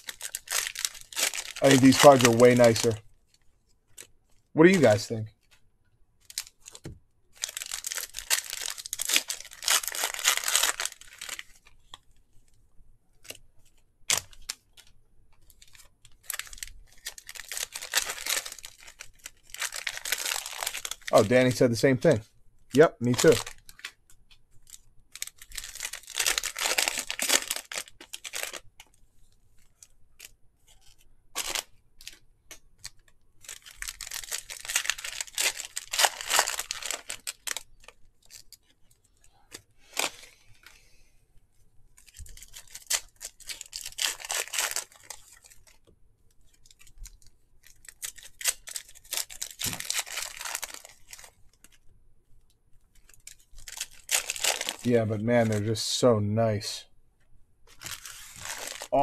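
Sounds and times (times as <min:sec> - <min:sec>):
card pack wrappers tearing: 0:00.0 - 0:03.0, 0:07.4 - 0:11.7, 0:15.5 - 0:21.4, 0:23.0 - 0:24.0, 0:24.6 - 0:28.6, 0:30.2 - 0:32.2, 0:32.8 - 0:38.6, 0:42.0 - 0:45.8, 0:46.5 - 0:51.8, 0:53.0 - 0:55.8, 0:57.7 - 0:59.0.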